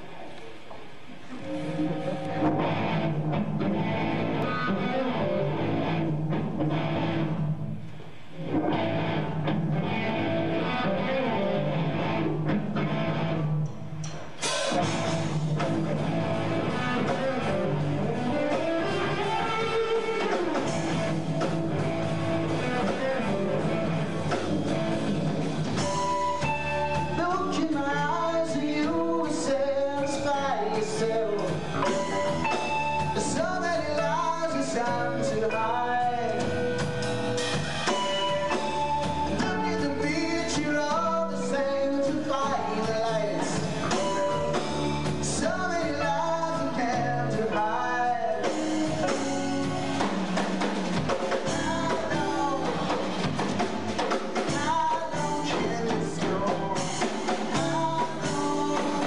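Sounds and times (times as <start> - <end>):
electric guitar: 0.0 - 59.0
rock band with drums: 0.0 - 59.0
man singing: 27.0 - 36.9, 39.3 - 49.8, 51.3 - 53.1, 54.3 - 59.0.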